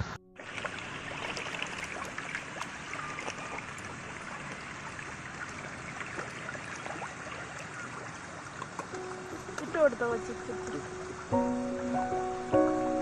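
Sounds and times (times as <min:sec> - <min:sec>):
fish splashing at water surface: 0:00.4 - 0:09.8.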